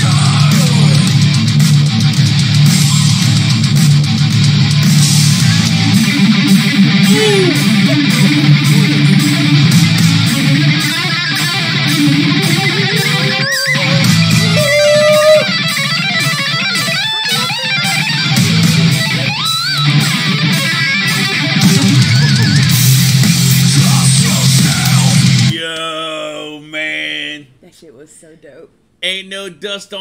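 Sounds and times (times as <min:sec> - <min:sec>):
distorted rhythm guitar: 0:00.0 - 0:25.6
drums: 0:00.0 - 0:25.6
electric guitar solo: 0:03.4 - 0:25.5.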